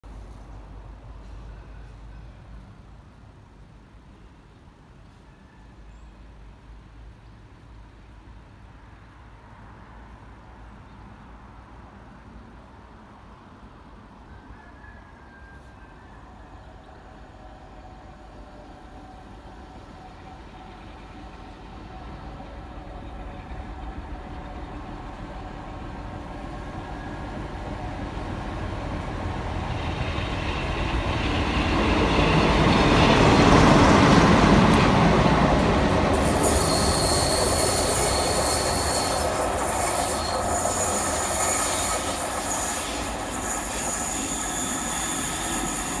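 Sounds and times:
wheels squealing on rails: 14.2 - 29.0, 29.6 - 46.0
diesel locomotive passing: 15.8 - 46.0.

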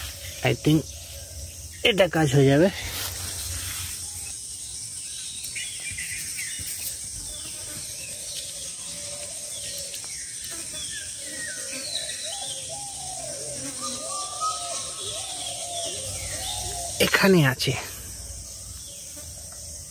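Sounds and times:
high-pitched insect drone: 0.0 - 19.9
bird chirps: 3.5 - 19.2.

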